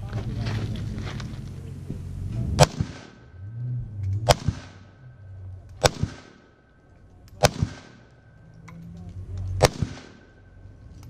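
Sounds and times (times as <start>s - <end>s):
rifle shots: 2.6s - 3.3s, 4.2s - 5.0s, 5.8s - 6.6s, 7.4s - 8.2s, 9.5s - 10.6s.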